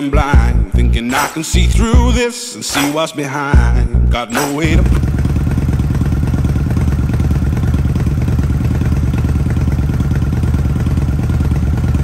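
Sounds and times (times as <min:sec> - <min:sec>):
motorcycle engine idling: 0:04.7 - 0:12.0.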